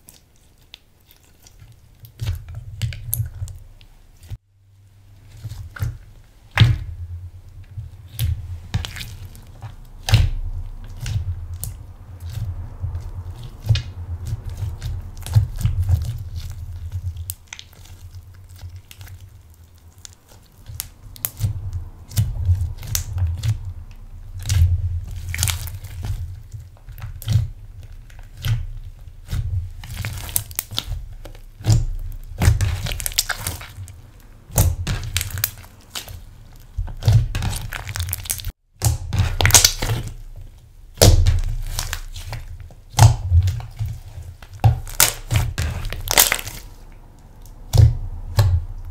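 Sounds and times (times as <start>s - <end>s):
slime squishing: 0.0s - 48.9s.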